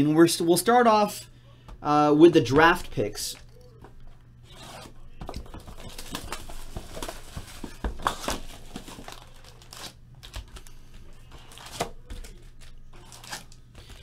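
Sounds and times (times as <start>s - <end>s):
plastic shrink wrap crinkling and tearing: 5.6s - 14.0s.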